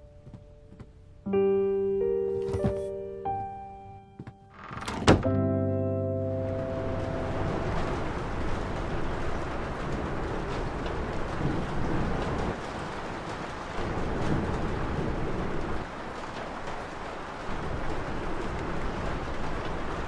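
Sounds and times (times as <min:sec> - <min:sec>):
low rumbling noise: 0:06.4 - 0:12.6.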